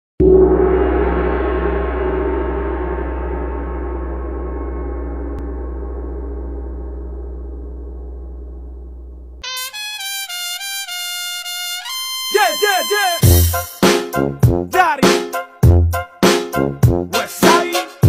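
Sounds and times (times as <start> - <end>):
deep hum: 0.2 - 9.4
gong ringing: 0.2 - 9.4.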